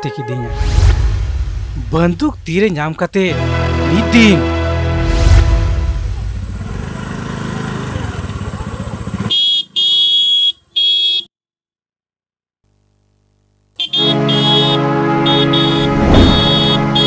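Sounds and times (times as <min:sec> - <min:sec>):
scooter engine rumbling: 0:06.0 - 0:09.8
scooter horn honking: 0:09.2 - 0:11.3, 0:13.8 - 0:17.0.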